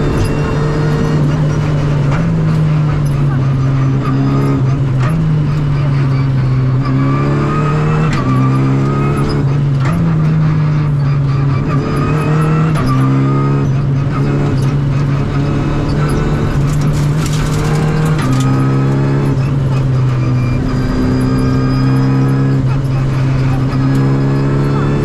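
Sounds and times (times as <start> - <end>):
rally car engine revving: 0.0 - 25.0.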